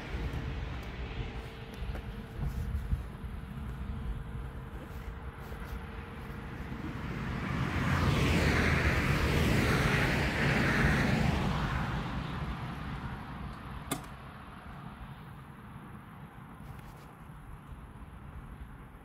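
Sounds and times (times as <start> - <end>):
vehicle passing by: 3.3 - 13.8
sharp click: 13.9 - 14.2.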